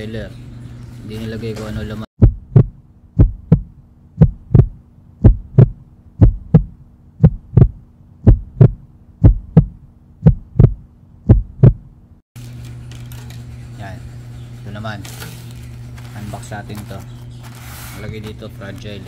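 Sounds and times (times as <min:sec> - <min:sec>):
steady low hum: 0:00.0 - 0:19.0
heartbeat double thump: 0:02.2 - 0:11.9.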